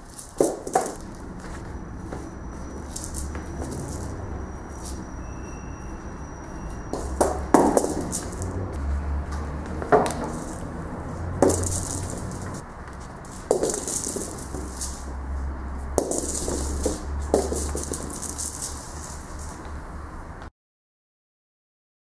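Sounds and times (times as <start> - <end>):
high rattling of rolling ball: 0.0 - 1.2, 2.8 - 5.0, 6.9 - 8.6, 9.9 - 10.7, 11.3 - 12.6, 13.2 - 15.2, 16.0 - 19.6
toy ball knocking on wooden floor: 0.4 - 1.0, 6.9 - 8.6, 9.8 - 10.6, 11.4 - 12.6, 13.5 - 15.2, 16.0 - 18.8.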